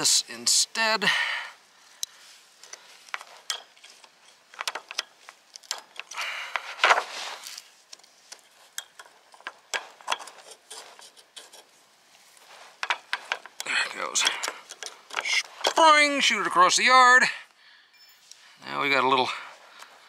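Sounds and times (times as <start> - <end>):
pliers scraping on metal: 2.0 - 6.6, 7.4 - 11.7, 12.7 - 15.8
metal clicks of pliers: 13.4 - 15.8.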